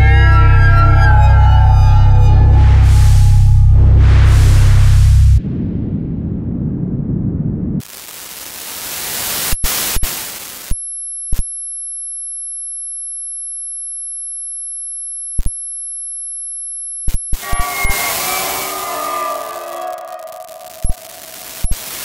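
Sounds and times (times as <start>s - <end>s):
pitched electronic tones: 0.0s - 3.8s, 10.8s - 22.0s
high pure tones: 0.0s - 5.4s, 12.3s - 22.0s
electronic hiss: 7.8s - 11.4s, 17.0s - 22.0s.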